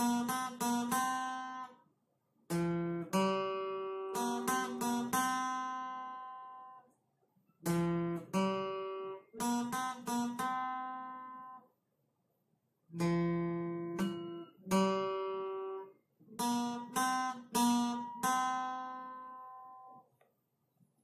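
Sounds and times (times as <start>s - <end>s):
acoustic guitar melody: 0.0s - 1.8s, 2.5s - 6.9s, 7.6s - 11.7s, 12.9s - 20.0s.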